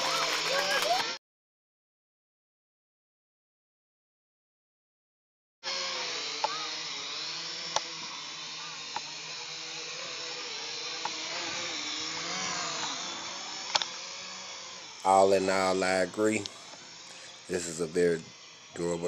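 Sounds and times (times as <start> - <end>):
drone propellers whining: 0.0 - 1.2, 5.7 - 19.0
sharp ticks: 6.4 - 6.6, 7.7 - 8.1, 8.9 - 9.1, 11.0 - 11.2, 13.6 - 14.0.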